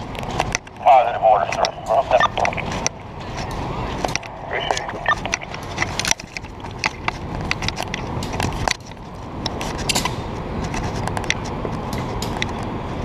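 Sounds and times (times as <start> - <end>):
low rumble: 0.0 - 9.6
gear clicks and footsteps: 0.0 - 13.0.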